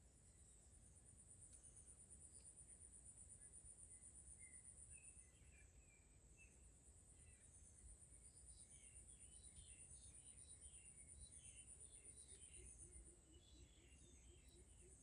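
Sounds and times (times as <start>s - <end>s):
bird chirps: 3.4s - 6.6s, 7.2s - 15.0s.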